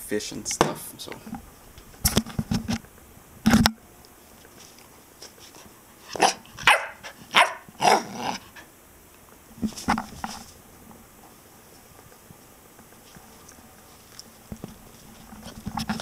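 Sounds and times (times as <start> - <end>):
puppy barking: 6.2 - 8.4.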